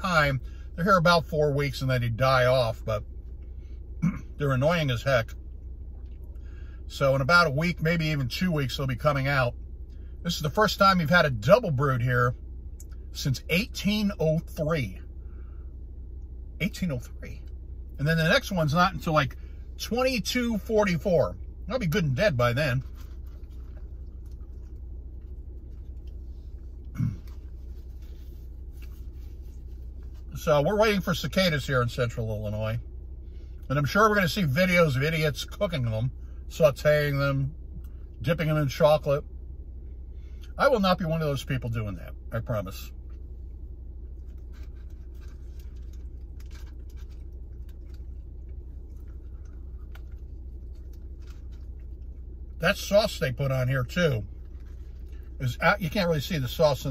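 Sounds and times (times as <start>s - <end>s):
low car cabin hum: 0.0s - 56.9s
man chewing food: 5.5s - 6.5s, 22.8s - 30.3s, 43.0s - 52.6s, 54.3s - 55.4s.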